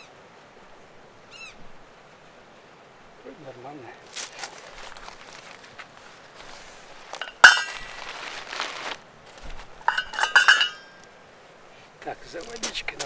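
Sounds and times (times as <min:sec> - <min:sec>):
metal cookware clinks and rattles: 0:07.2 - 0:07.9, 0:09.9 - 0:11.0
metal cookware ringing clank: 0:07.2 - 0:07.9, 0:09.9 - 0:11.0.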